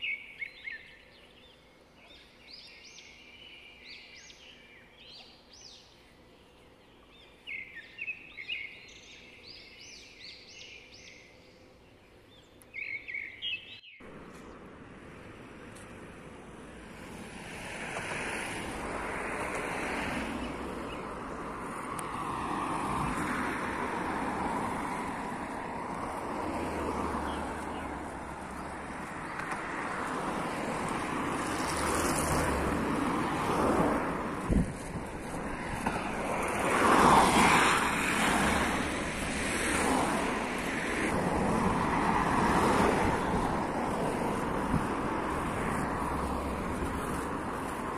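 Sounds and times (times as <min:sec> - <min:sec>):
small birds chirping: 0:00.0 - 0:14.7
steady rushing noise: 0:37.7 - 0:47.9.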